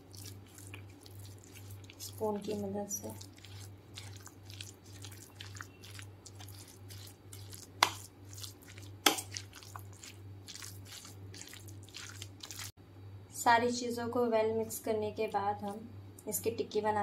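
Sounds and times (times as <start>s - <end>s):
spoon squelching and scraping paste: 0.0s - 12.8s.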